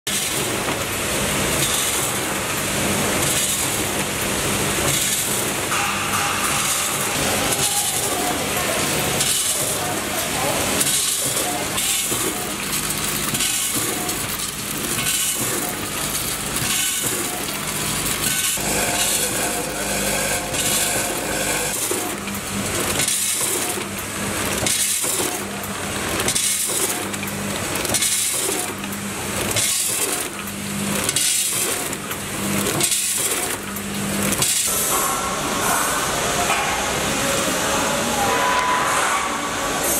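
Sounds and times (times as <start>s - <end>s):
packing machine cycling: 0.1s - 34.9s
steady machine hum: 0.1s - 39.9s.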